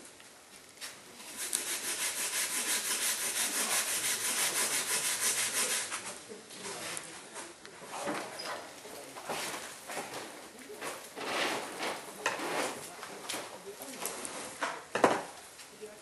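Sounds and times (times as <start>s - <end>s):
rapid back-and-forth scraping: 1.2s - 7.2s.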